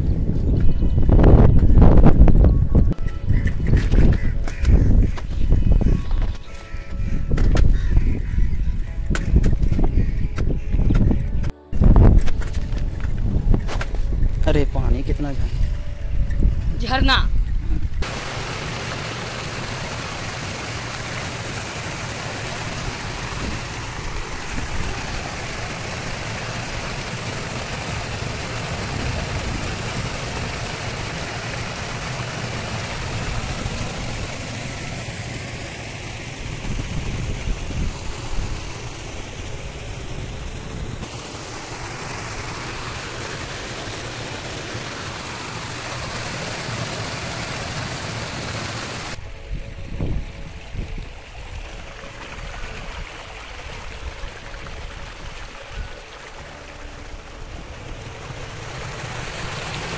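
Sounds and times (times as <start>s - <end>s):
water rushing in a waterfall: 18.0s - 49.2s, 50.0s - 59.9s.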